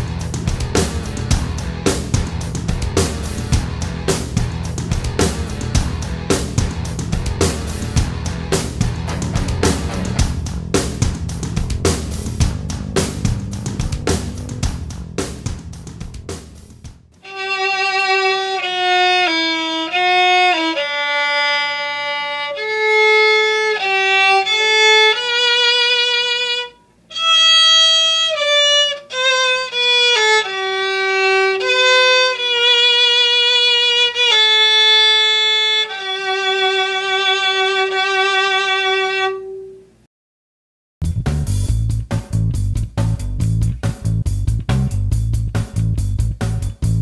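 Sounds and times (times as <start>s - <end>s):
solo violin slow melody: 17.2s - 39.8s.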